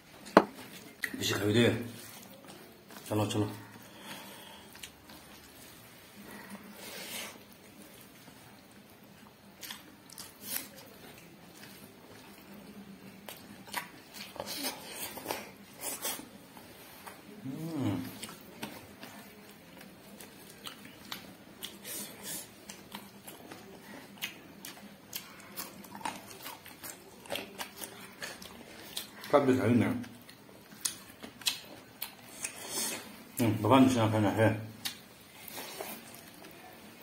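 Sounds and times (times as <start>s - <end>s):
person chewing and biting: 9.6s - 12.2s, 19.8s - 29.3s, 30.2s - 33.1s.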